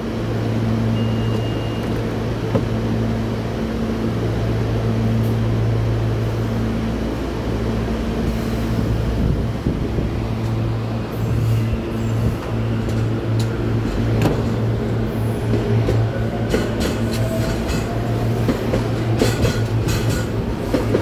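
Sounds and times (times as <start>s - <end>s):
train electric hum: 0.0s - 21.0s
short high beep: 1.0s - 1.8s.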